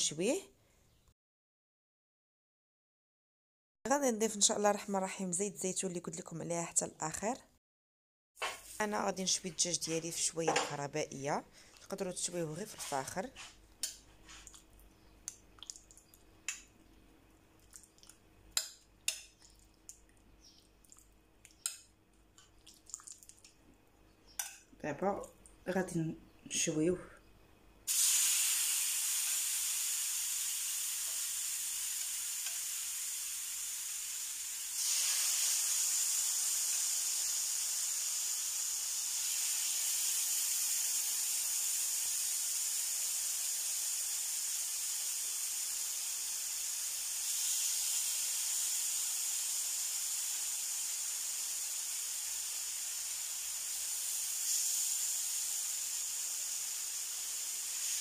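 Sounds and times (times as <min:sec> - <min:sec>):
chicken sizzling on a griddle: 0:27.9 - 0:58.0.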